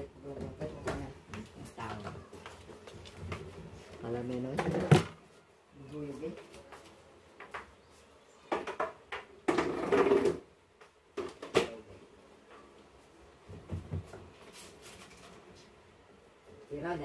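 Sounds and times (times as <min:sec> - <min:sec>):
cabinet parts knocking and clattering: 0:04.4 - 0:05.2, 0:08.5 - 0:10.4, 0:13.5 - 0:14.3.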